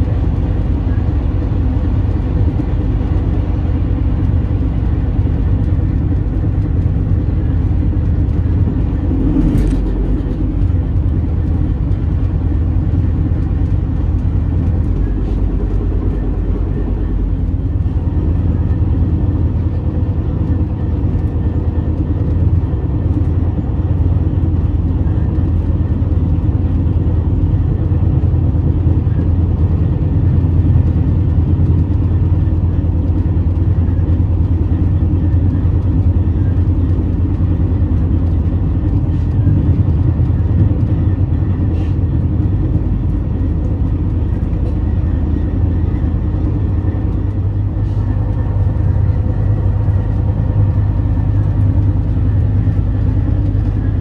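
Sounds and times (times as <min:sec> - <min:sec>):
low vehicle rumble: 0:00.0 - 0:54.0.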